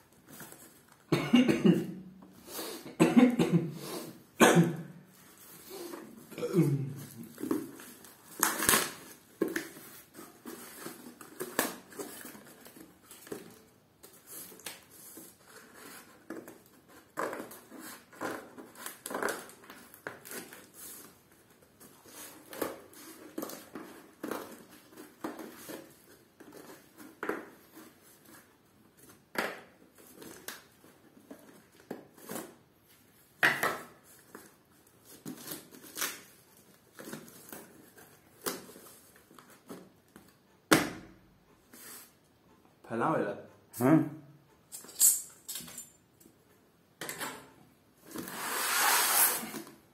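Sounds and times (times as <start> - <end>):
handling cardboard box and books: 0.0 - 1.1, 5.1 - 6.4, 7.0 - 40.4, 47.9 - 49.9.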